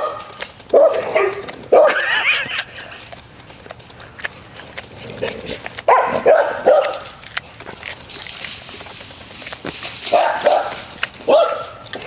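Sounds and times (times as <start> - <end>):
dog barking: 0.0 - 2.1, 5.8 - 7.2, 10.1 - 12.0.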